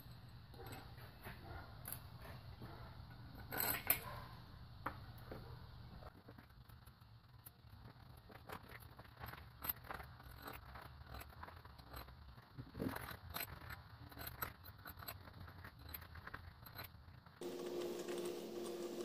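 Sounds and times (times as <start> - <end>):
metal bolts clicking and scraping: 0.5 - 4.2, 8.3 - 17.1.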